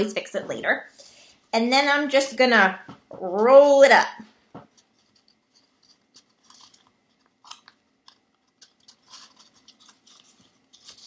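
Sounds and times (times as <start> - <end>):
paper crinkling and rustling: 4.6 - 11.0.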